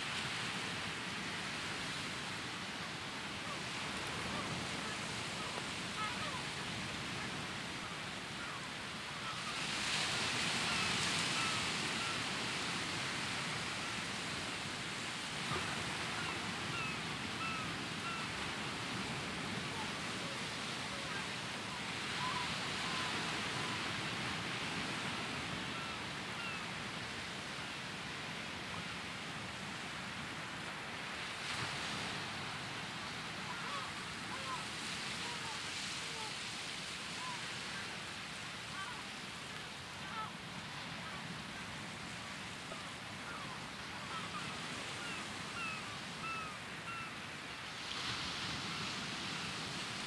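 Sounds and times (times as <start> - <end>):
sea surf: 0.0 - 50.0
faint bird calls: 43.2 - 47.2.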